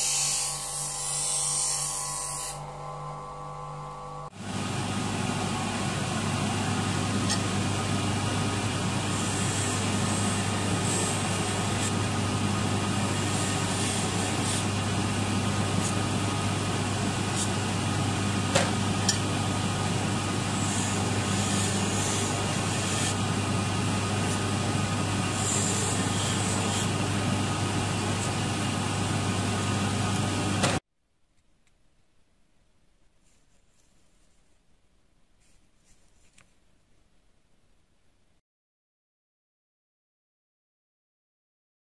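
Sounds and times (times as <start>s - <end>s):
polishing machine motor hum: 2.6s - 30.8s
blade scrubbing on spinning wheel: 8.6s - 18.2s, 18.9s - 30.7s.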